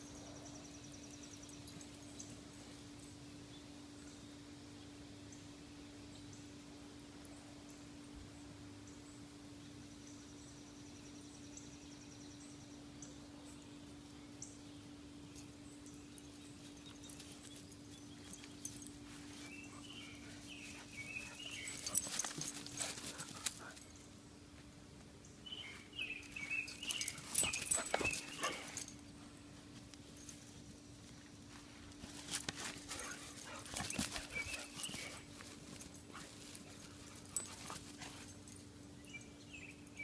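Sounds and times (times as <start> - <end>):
crackly rustling: 31.0 - 38.6.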